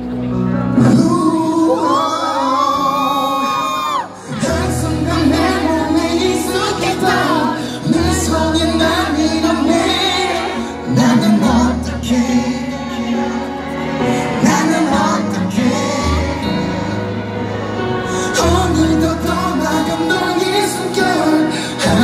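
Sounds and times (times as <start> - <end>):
pop backing track with bass: 0.0 - 22.0
person singing: 0.6 - 22.0.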